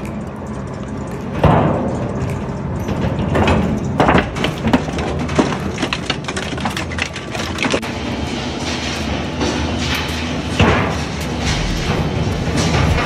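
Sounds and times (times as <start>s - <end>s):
sheet metal cracking and crunching: 0.2s - 13.0s
shredder rumble: 4.2s - 13.0s.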